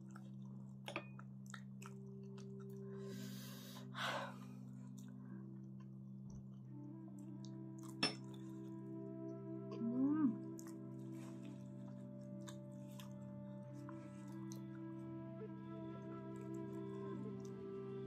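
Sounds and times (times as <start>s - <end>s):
eating sounds: 0.0s - 3.9s, 7.1s - 8.7s, 9.7s - 14.9s
soft held chord music: 0.0s - 18.0s.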